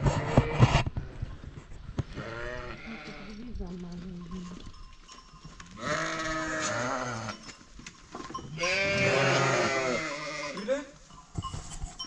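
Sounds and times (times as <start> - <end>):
sheep bleating: 2.2 - 3.4, 5.8 - 7.4, 8.6 - 10.7.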